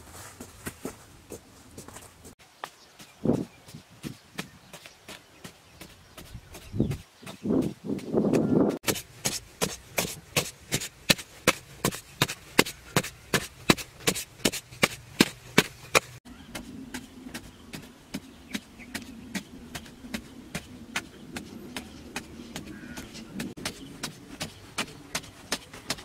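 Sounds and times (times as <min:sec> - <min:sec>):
digging tool chopping hard earth: 0:06.3 - 0:26.0.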